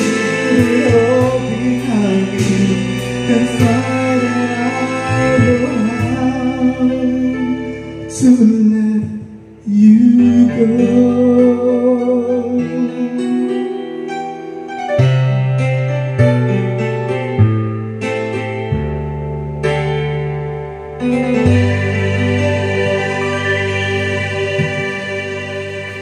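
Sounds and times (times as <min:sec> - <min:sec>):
person singing: 0:00.0 - 0:14.1, 0:21.4 - 0:26.0
karaoke backing music: 0:00.0 - 0:26.0.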